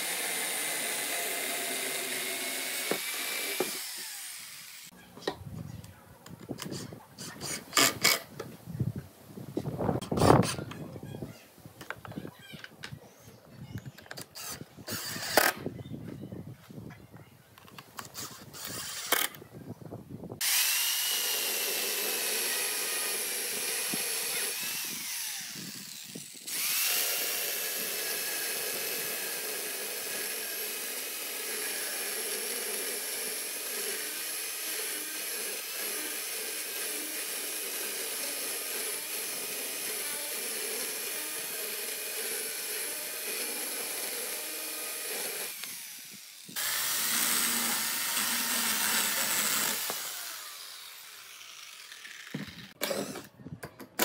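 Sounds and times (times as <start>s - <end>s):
electric chainsaw cutting log: 0.0s - 4.9s, 14.2s - 15.6s, 20.4s - 53.3s.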